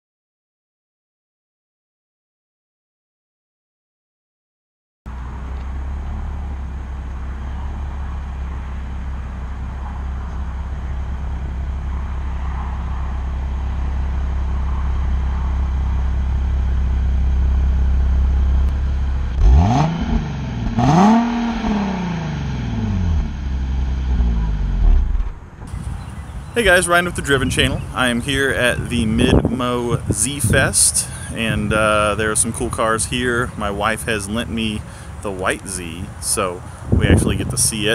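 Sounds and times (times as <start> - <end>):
car engine idling and revving: 5.1 - 26.5.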